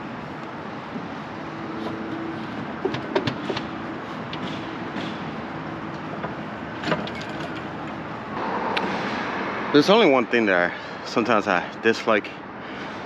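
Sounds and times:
metallic clicks and knocks: 2.6 - 8.0.

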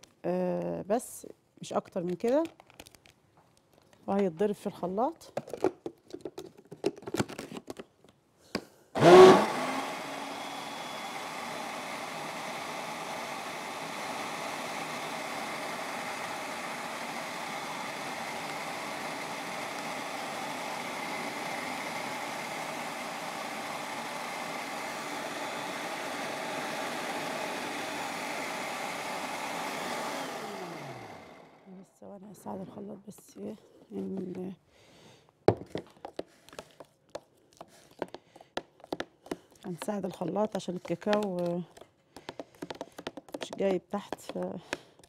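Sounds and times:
electric blender running: 9.0 - 31.8.

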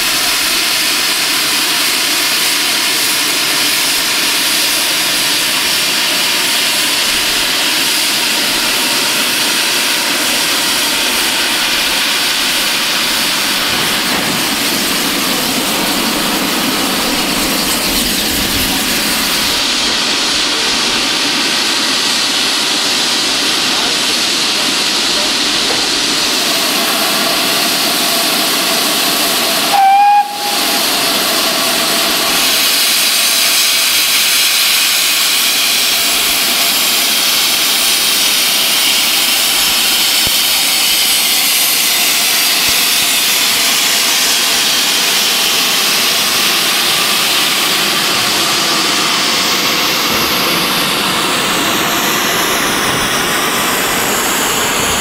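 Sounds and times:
steam locomotive hissing: 0.0 - 55.0
steam whistle: 29.6 - 31.0.

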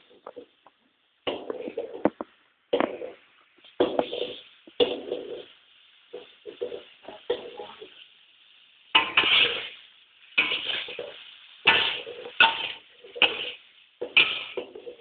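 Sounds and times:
faint sizzling of food: 0.0 - 15.0
metal spatula clanking on pan: 9.0 - 9.7, 10.4 - 15.0.

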